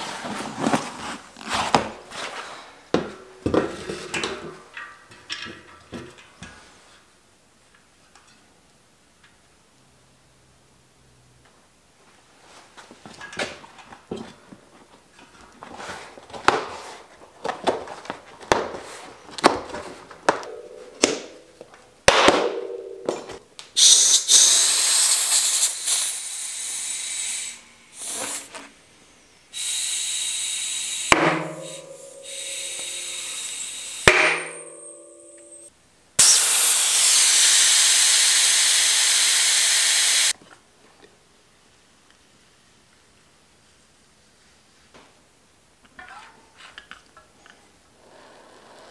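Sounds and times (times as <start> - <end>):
tire handling clicks and knocks: 2.9 - 6.7
compressed air hissing: 23.8 - 28.5, 29.5 - 34.8, 36.2 - 40.3.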